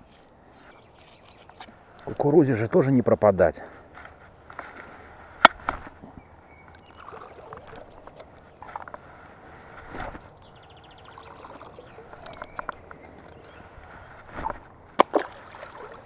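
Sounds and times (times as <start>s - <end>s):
light splashes on water: 15.0s - 16.0s.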